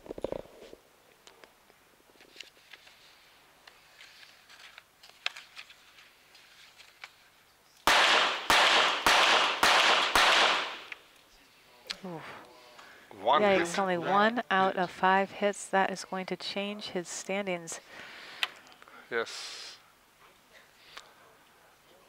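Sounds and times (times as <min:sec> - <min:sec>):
pistol shots echoing: 0:07.8 - 0:10.9.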